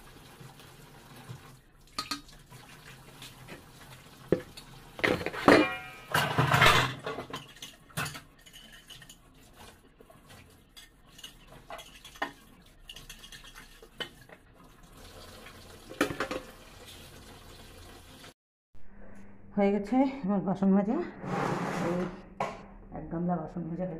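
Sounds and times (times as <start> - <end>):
metal dishes clanking: 5.0 - 9.2.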